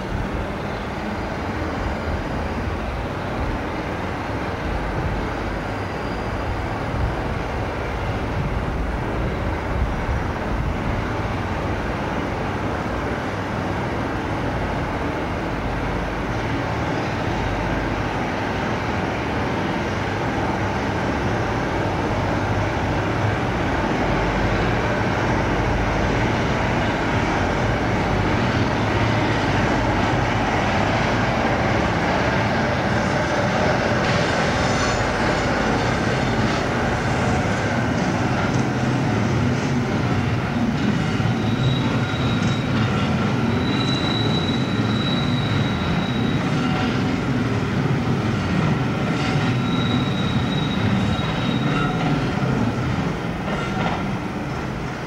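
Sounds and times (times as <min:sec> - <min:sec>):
train wheels squealing: 0:00.0 - 0:08.3, 0:15.7 - 0:54.7
diesel locomotive engine running: 0:00.0 - 0:55.0.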